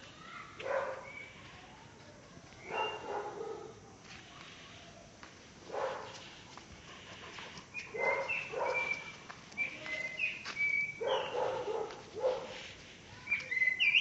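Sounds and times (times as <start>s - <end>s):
dog barking: 0.6s - 1.2s, 2.6s - 4.0s, 5.7s - 6.2s, 7.9s - 9.1s, 11.0s - 12.6s
small birds chirping: 0.9s - 1.6s, 2.5s - 3.2s, 6.2s - 14.0s.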